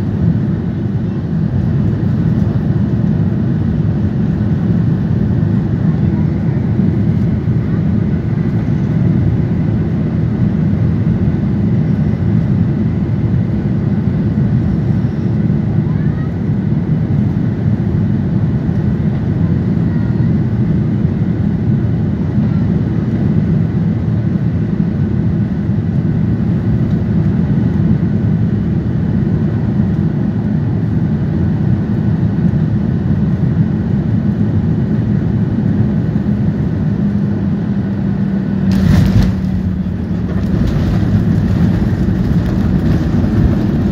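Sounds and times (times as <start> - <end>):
jet engines and rushing air: 0.0 - 19.7, 20.3 - 43.9
wheels touching down thump: 38.7 - 43.9.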